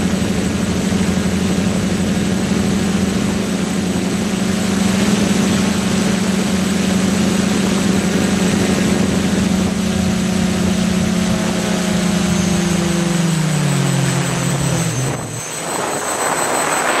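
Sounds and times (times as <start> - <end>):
drone propellers whirring: 0.0 - 17.0
rushing noise: 0.0 - 17.0.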